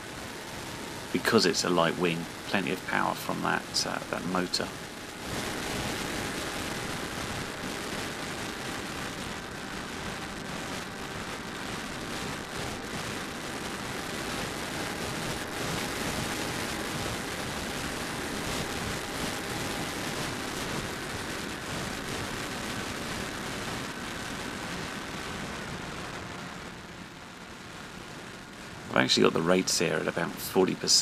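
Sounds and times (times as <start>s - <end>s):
rushing air: 0.0s - 26.8s
electric motor whine: 0.0s - 31.0s.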